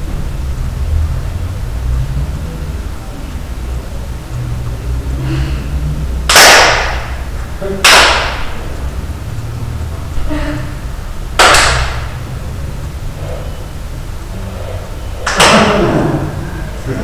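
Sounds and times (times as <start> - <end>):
steady low hum: 0.0 - 17.0
sharp loud cracks: 6.3 - 7.2, 7.8 - 8.6, 11.4 - 12.2, 15.2 - 15.9.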